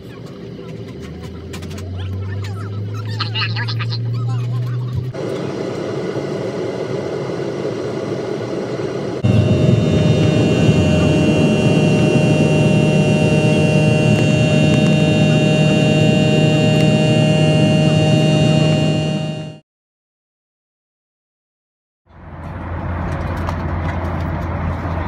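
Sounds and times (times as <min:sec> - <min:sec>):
jet engine roar with fan whine: 0:00.0 - 0:04.1, 0:04.7 - 0:19.6, 0:22.1 - 0:25.0.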